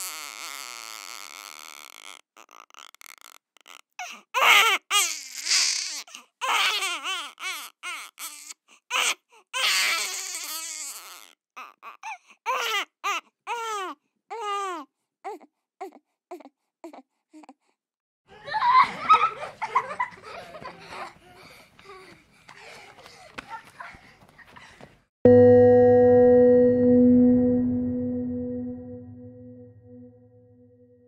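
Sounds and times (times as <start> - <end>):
baby crying: 4.0 - 17.6.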